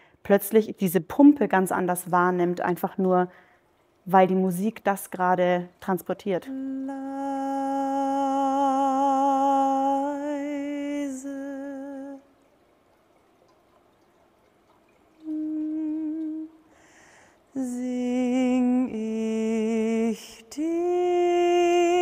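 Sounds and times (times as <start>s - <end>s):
person singing long held notes: 6.5s - 12.3s, 15.2s - 16.7s, 17.5s - 22.0s.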